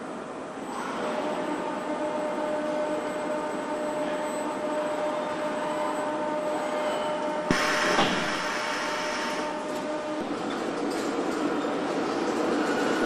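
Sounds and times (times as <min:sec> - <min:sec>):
burst of hissing: 0:07.5 - 0:09.4
assembly-line machinery hum: 0:07.5 - 0:10.5.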